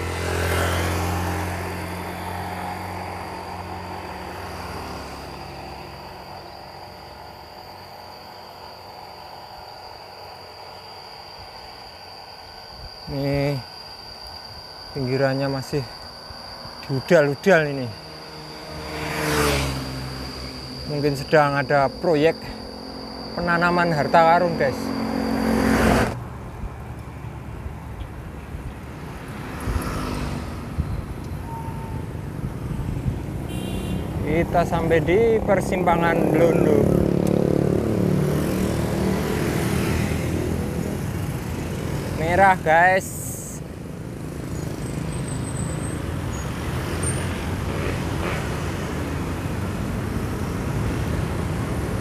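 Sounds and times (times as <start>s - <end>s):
motor vehicle passing: 0.0s - 8.0s, 16.8s - 27.9s, 28.5s - 42.2s
rush of noise: 0.0s - 26.8s, 27.4s - 45.1s
low rumble of road noise: 0.0s - 52.0s.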